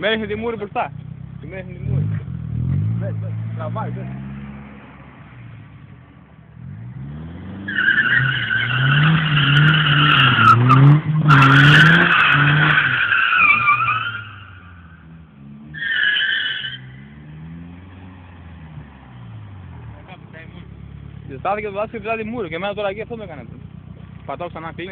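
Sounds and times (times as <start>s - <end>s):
car engine revving: 0.0s - 24.9s
tyres squealing: 7.7s - 15.0s.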